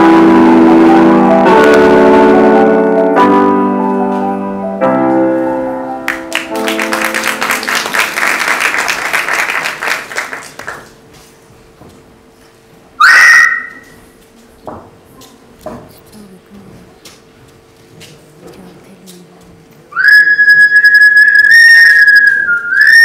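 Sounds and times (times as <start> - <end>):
piano chords: 0.0 - 10.1
audience applause: 6.1 - 11.0.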